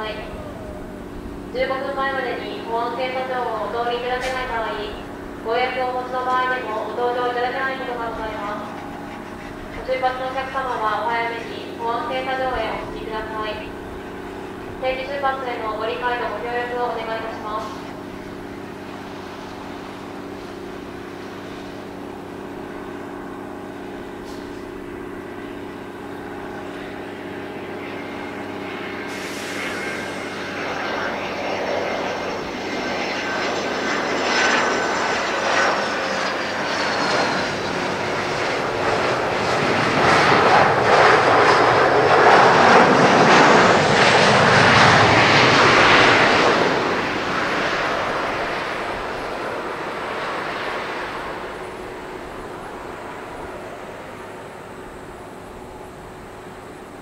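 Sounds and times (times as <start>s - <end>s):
reverse thrust roar: 0.0s - 55.0s
jet engine whine: 0.0s - 57.0s.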